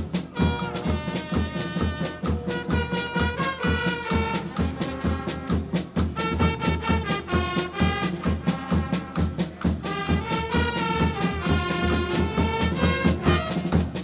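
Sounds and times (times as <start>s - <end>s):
carnival band music: 0.0s - 14.0s.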